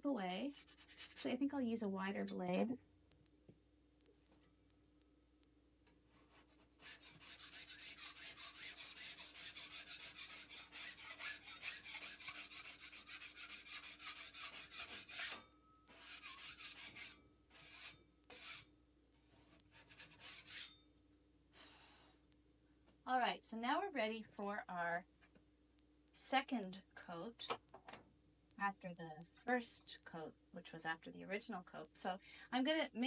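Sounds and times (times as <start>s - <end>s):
drywall knife scraping: 6.2s - 18.7s, 19.3s - 20.9s.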